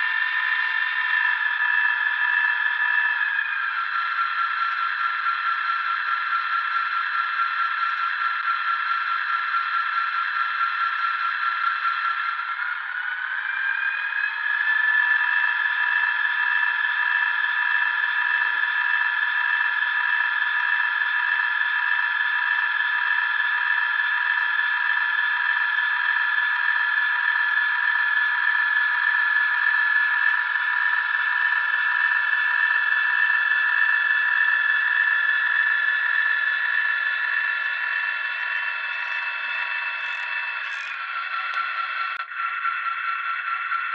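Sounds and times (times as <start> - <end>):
tinny diesel engine from small speaker: 0.0 - 43.9.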